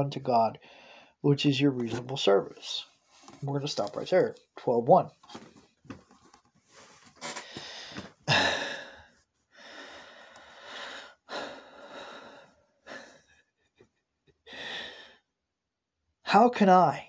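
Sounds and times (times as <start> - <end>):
man breathing: 0.6 - 1.2, 6.7 - 13.5, 14.4 - 15.3.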